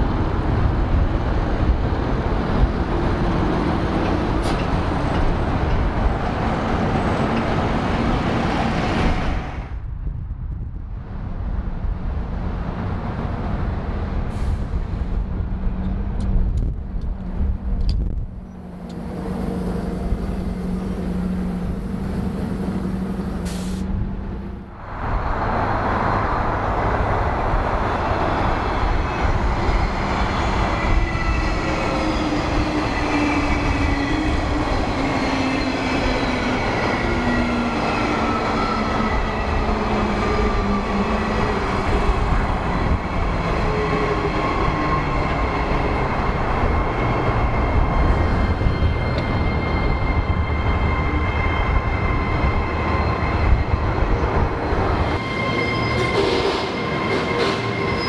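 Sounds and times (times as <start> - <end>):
train wheels on rails: 0.0 - 9.6, 12.7 - 58.0
bus engine passing: 11.0 - 31.0
electric train whine: 14.5 - 58.0.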